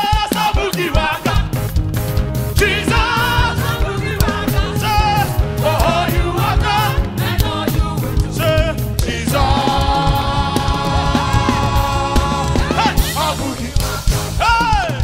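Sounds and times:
singers singing with vibrato: 0:00.0 - 0:01.6, 0:02.6 - 0:15.0
band with bass and drums: 0:00.0 - 0:15.0.

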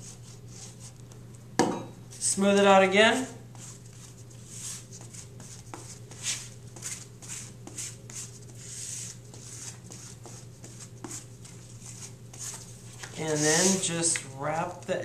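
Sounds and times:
cardboard scraping over cardboard: 0:11.8 - 0:13.9.

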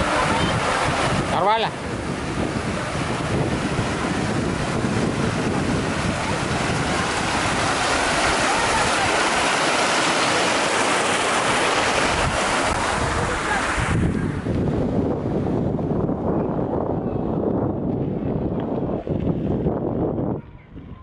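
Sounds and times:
fountain water splashing: 0:00.0 - 0:15.5.

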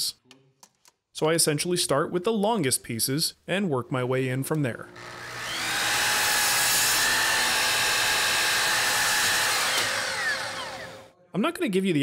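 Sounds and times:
miter saw motor whine: 0:04.9 - 0:11.1
saw blade cutting wood: 0:05.0 - 0:11.1.

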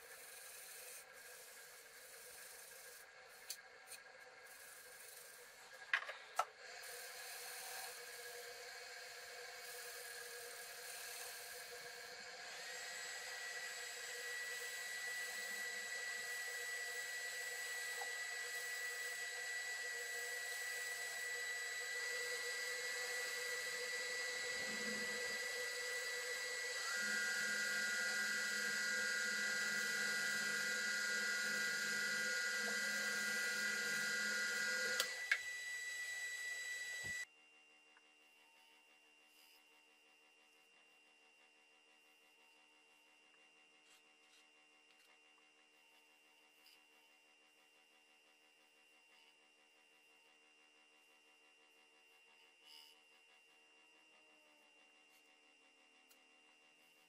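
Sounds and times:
wood lathe electric whine: 0:00.0 - 0:37.3.

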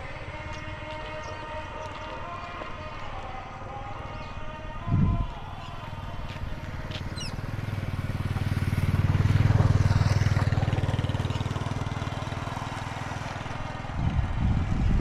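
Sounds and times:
vehicle engine passing by: 0:05.1 - 0:15.0.

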